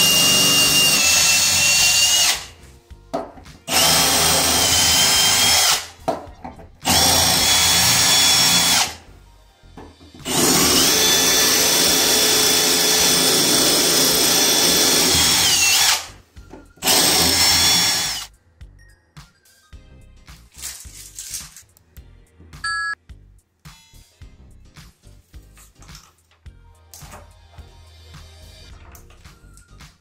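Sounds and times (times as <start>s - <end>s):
cordless drill whining: 0.0s - 2.5s, 3.7s - 5.9s, 6.8s - 9.0s, 10.2s - 16.1s, 16.8s - 18.3s.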